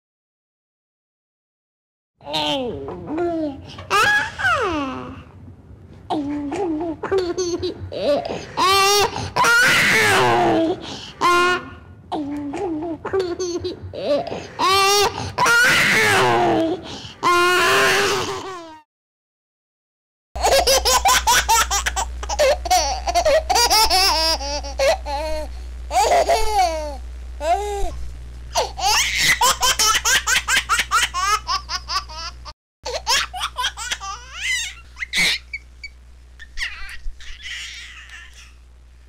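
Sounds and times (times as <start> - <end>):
steady low hum: 2.3 - 17.3, 20.4 - 39.0
baby laughing: 3.8 - 5.1, 6.1 - 16.3, 17.2 - 18.8, 20.4 - 28.0, 28.6 - 35.6, 36.4 - 38.6.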